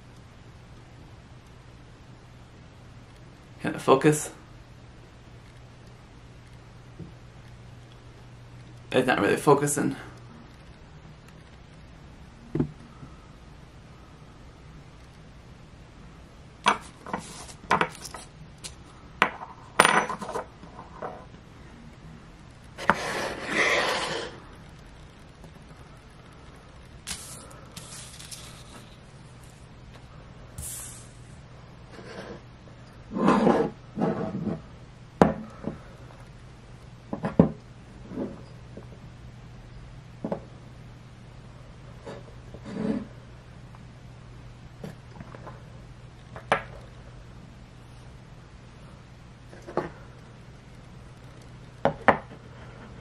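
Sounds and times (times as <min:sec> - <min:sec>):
low hum: 0:04.3 - 0:53.0
short rustle: 0:27.1 - 0:29.6.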